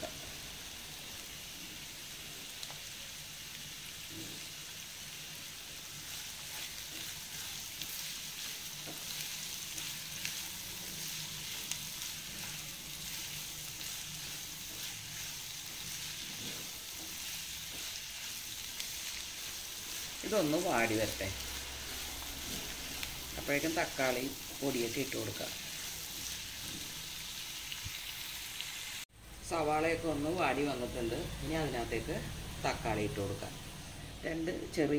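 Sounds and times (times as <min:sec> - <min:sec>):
onions sizzling in oil: 0:00.0 - 0:34.9
spatula scraping pan: 0:05.8 - 0:27.2.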